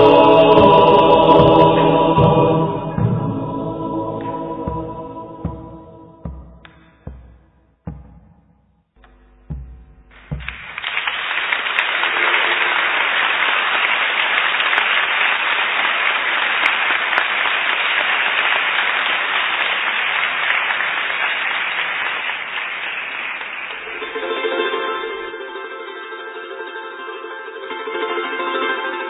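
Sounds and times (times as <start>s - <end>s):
large crowd applauding: 10.2s - 24.3s.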